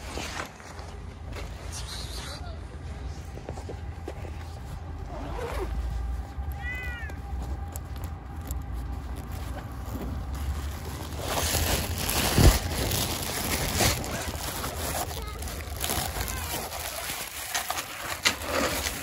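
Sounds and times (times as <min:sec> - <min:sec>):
steady low rumble: 0:00.0 - 0:17.0
cat meowing: 0:06.6 - 0:07.2.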